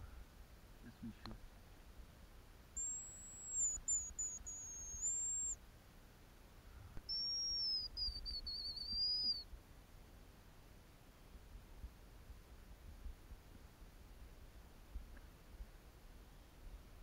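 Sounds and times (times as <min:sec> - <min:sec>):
grouse whistles: 0:02.8 - 0:05.6, 0:07.0 - 0:09.5.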